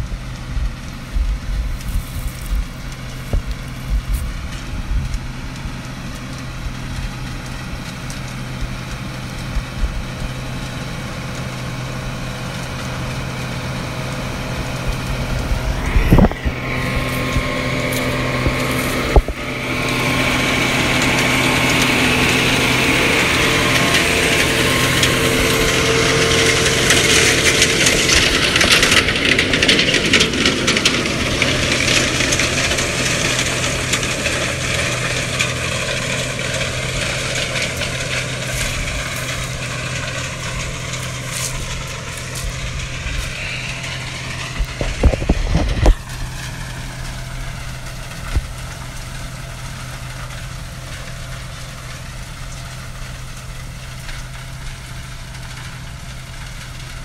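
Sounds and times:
tractor diesel engine running: 0.0 - 57.0
digger and shaker rattling: 0.1 - 57.0.

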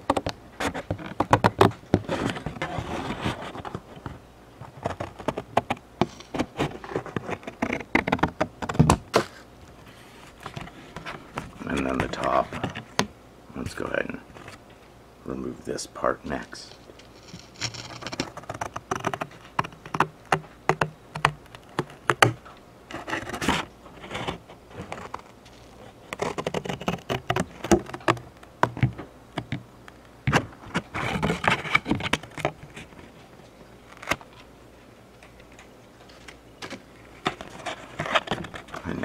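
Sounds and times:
glued cardboard scraping apart: 0.0 - 13.0, 16.7 - 28.9, 30.3 - 33.1
cardboard box crackling: 4.6 - 13.0, 16.7 - 28.9.

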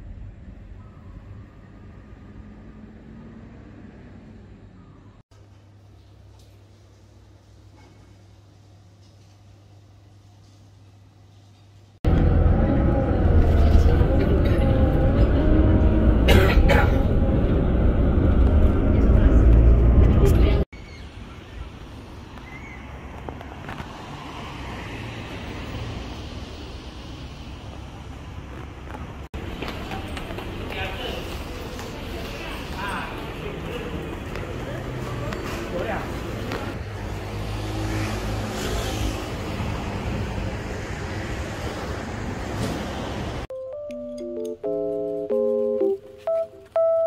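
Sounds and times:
vehicle engine hum and tyre rush: 0.0 - 5.2, 12.0 - 43.5
steady traffic noise: 0.0 - 43.5
cars driving past: 1.7 - 4.8, 21.9 - 43.5.

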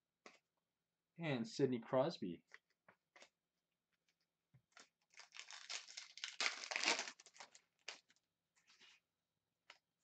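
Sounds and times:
wrapper being torn and crinkled: 4.8 - 8.2.

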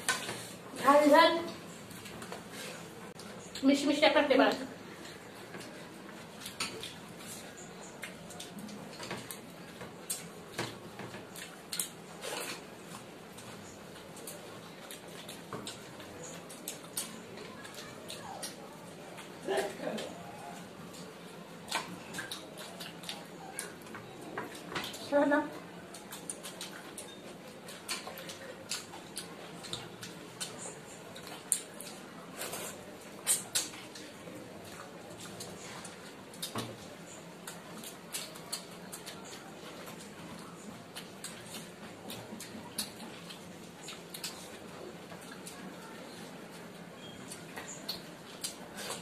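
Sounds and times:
mouth smacks and chewing: 4.9 - 45.9, 46.5 - 49.0.

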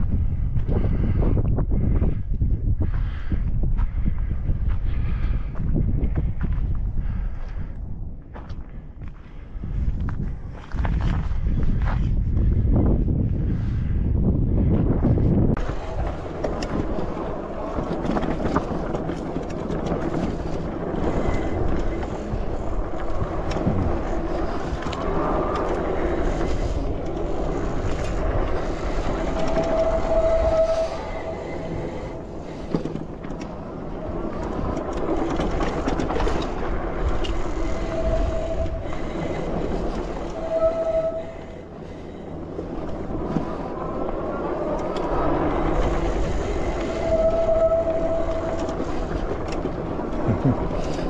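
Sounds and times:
bike rattling over dirt: 14.8 - 41.2, 41.8 - 51.0
brakes squealing: 15.5 - 51.0.

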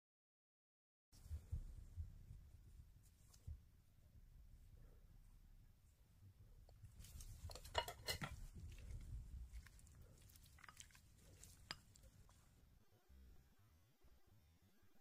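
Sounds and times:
chewing: 6.7 - 12.6.

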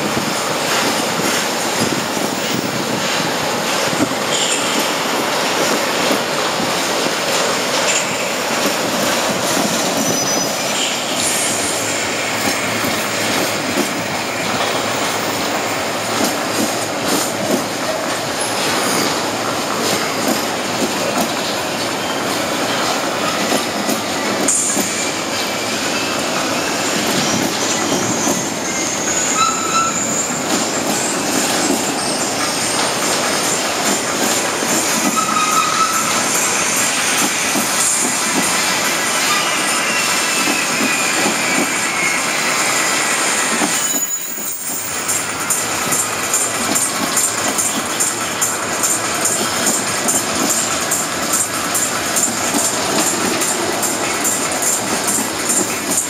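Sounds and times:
wheels clicking over rail joints: 0.0 - 10.5, 43.4 - 56.0
train wheels rumbling on rails: 0.0 - 56.0
high wheel squeals: 9.4 - 16.0, 21.5 - 33.8, 35.0 - 46.2.

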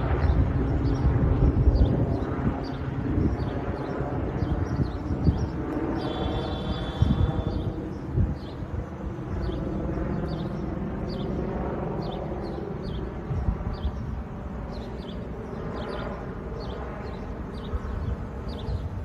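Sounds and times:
helicopter rotor drone: 0.0 - 19.0.

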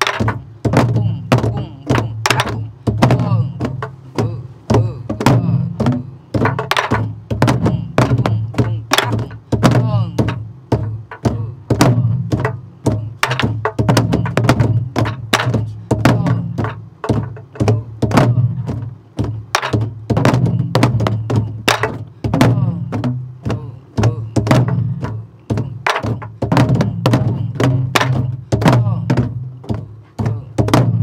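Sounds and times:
stick clacking on wooden drum shells: 0.0 - 0.5, 2.2 - 2.6, 6.4 - 7.1, 8.9 - 9.4, 13.2 - 15.7, 19.2 - 19.9, 20.8 - 22.1, 25.7 - 26.6
deep booming drum strokes: 0.0 - 31.0.

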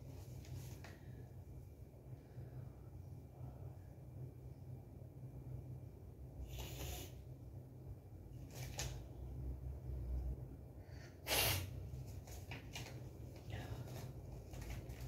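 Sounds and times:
steady low hum: 0.0 - 15.0
paper sheets rustling: 12.0 - 15.0.

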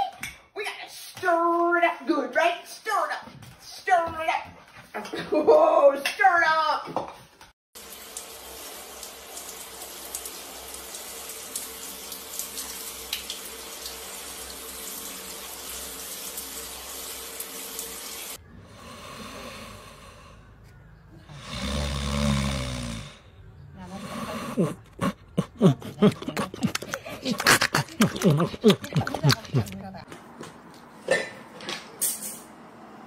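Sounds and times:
puppy snoring: 21.2 - 25.7.

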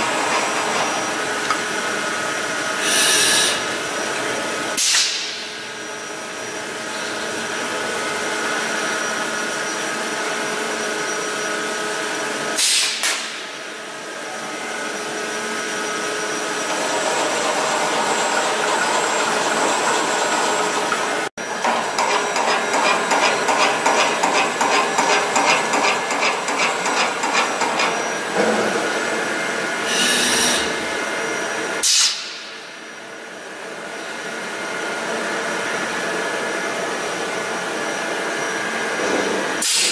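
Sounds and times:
welding robot machine hum: 0.0 - 4.6, 29.8 - 31.0
robot arm whining tones: 2.8 - 3.7, 29.8 - 31.0.

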